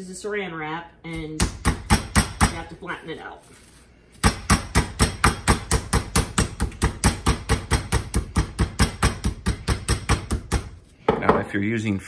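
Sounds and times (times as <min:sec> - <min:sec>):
meat mallet pounding chicken: 0:01.4 - 0:02.6, 0:04.2 - 0:10.8.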